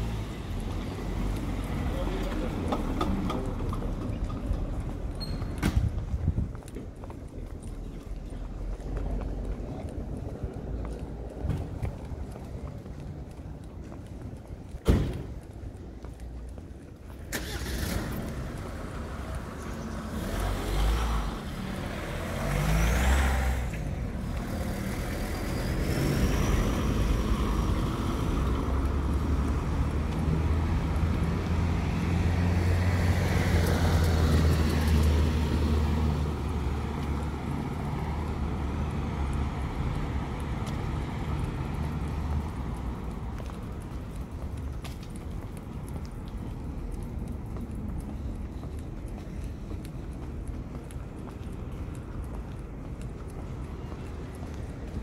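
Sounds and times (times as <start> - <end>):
passing traffic: 0.0 - 55.0
vehicle engine rumbling nearby: 0.0 - 55.0.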